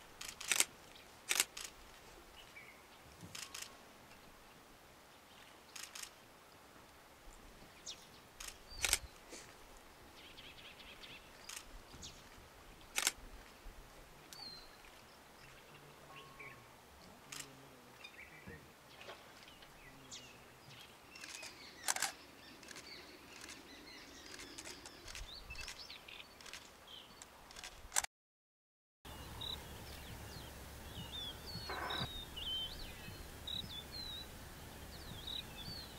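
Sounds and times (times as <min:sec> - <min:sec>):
sharp clicks: 0:00.2 - 0:00.7, 0:01.3 - 0:01.7, 0:05.8 - 0:06.1, 0:08.4 - 0:09.1, 0:13.0 - 0:13.2, 0:21.2 - 0:23.6, 0:24.2 - 0:25.8
bird chirps: 0:29.1 - 0:35.9.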